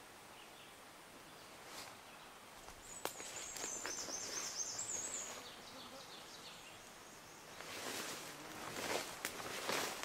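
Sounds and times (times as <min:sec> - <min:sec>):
songbird singing: 0:00.1 - 0:10.0
brush rustling: 0:02.6 - 0:05.5, 0:07.5 - 0:10.0
footsteps: 0:07.6 - 0:10.0.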